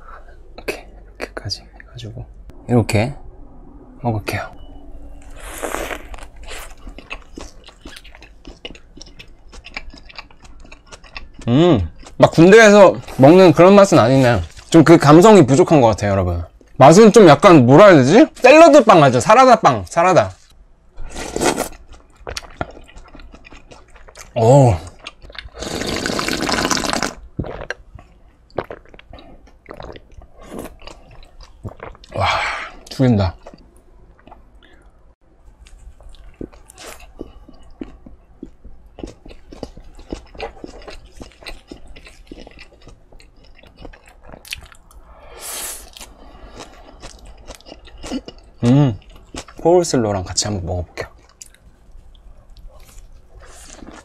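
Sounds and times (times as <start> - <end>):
mouth chewing food: 5.2 - 12.5, 21.3 - 34.8, 35.6 - 45.0, 45.8 - 49.7, 51.0 - 54.0
loud slurp of milk: 25.6 - 27.2.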